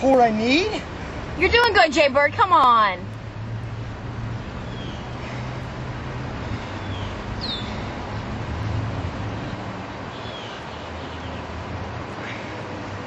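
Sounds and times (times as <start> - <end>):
road traffic rumble: 0.0 - 13.0
bird chirps: 4.6 - 5.2, 6.6 - 7.8.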